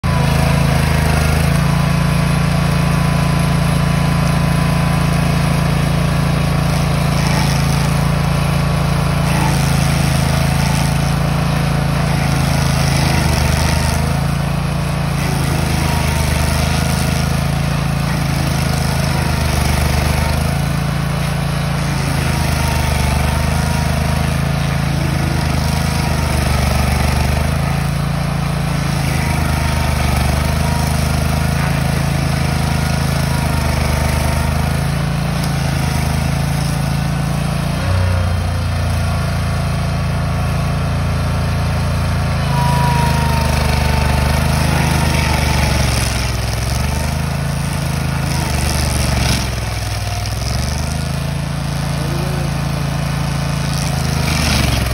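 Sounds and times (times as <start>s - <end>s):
cutter wheel grinding stump: 0.0s - 54.9s
stump grinder engine running: 0.0s - 54.9s.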